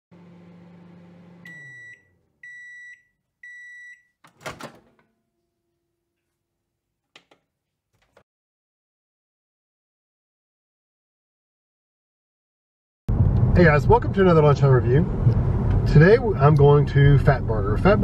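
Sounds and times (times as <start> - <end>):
microwave oven humming: 0.1 - 5.5
microwave beeps: 1.2 - 4.6
door latch clunk: 4.2 - 5.1.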